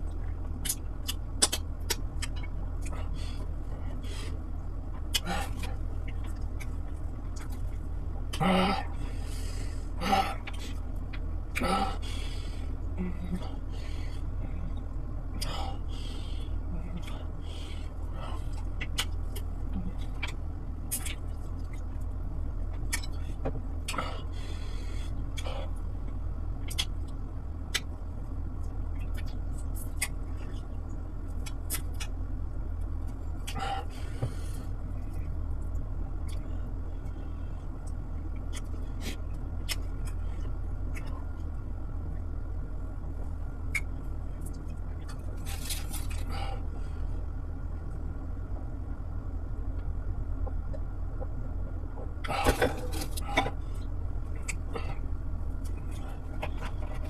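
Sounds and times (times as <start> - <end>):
low hum: 0.0 - 57.0
chewing and lip smacks: 0.6 - 3.0, 18.4 - 22.1, 26.6 - 28.0.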